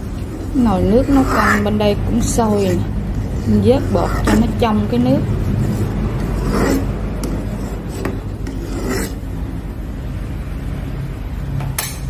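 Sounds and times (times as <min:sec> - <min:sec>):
metal ladle scraping pot: 0:00.0 - 0:09.2.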